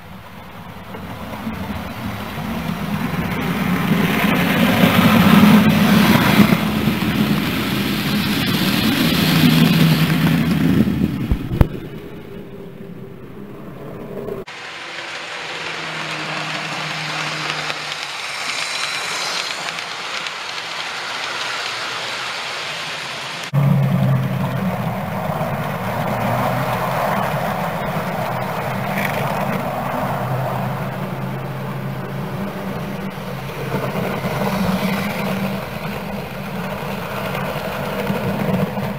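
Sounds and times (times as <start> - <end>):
model train wheels rumbling on rails: 0.0 - 12.3, 14.4 - 38.9
model train motor hum: 14.5 - 23.5.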